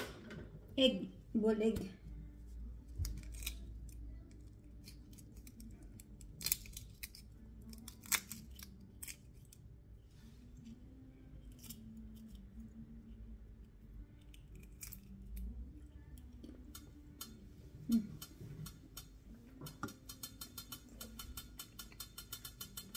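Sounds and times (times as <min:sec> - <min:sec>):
egg shell cracking and peeling: 0:02.8 - 0:17.4.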